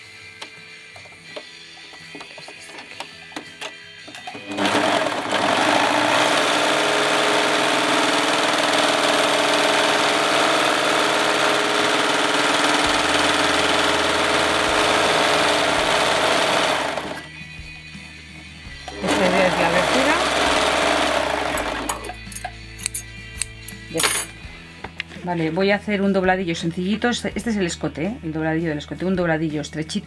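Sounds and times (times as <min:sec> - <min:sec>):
overlock machine stitching: 0:04.3 - 0:17.3, 0:18.9 - 0:22.2.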